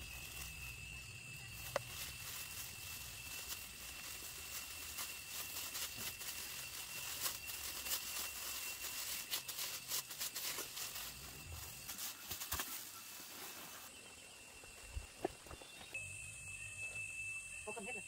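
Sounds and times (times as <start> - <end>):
plastic gloves crinkling: 0.0 - 13.9.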